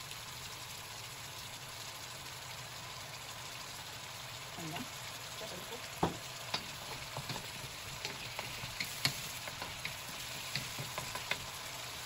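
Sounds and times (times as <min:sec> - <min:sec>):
squash sizzling in oil: 0:00.0 - 0:12.0
wooden spoon scraping a pan: 0:06.8 - 0:11.5.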